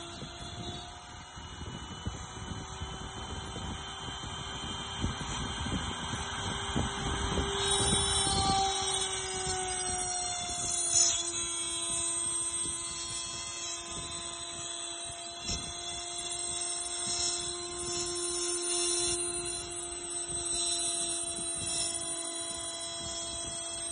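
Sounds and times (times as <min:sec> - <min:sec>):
router spindle whine: 0:00.0 - 0:23.9
engraving bit ticking: 0:07.5 - 0:23.9.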